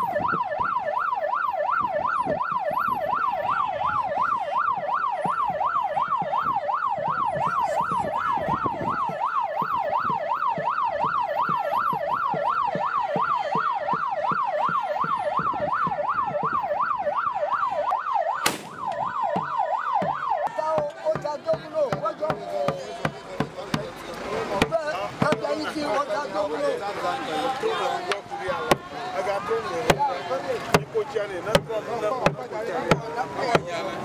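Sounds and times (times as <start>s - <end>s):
siren yelp wail: 0.0s - 22.4s.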